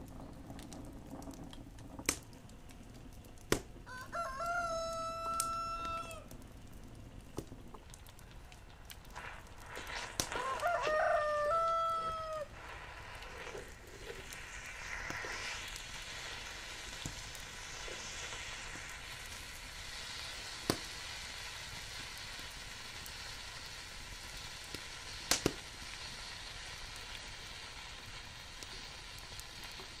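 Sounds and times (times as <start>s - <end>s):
food sizzling in pan: 3.9s - 6.3s, 9.1s - 30.0s
rooster crowing: 3.9s - 6.3s, 10.3s - 12.6s.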